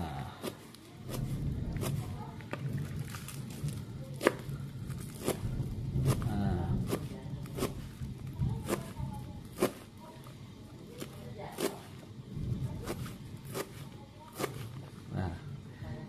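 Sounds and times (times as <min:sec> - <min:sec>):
knife chopping on plastic board: 0:00.4 - 0:02.0, 0:04.2 - 0:04.5, 0:05.1 - 0:09.9, 0:10.9 - 0:12.0, 0:12.8 - 0:14.8.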